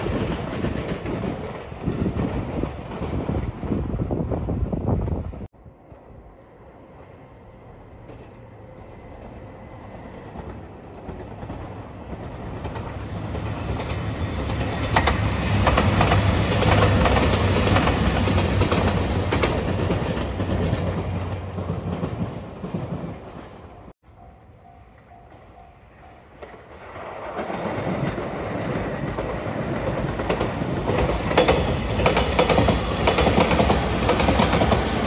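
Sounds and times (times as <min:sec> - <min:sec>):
train passing with rumble: 0:00.0 - 0:35.0.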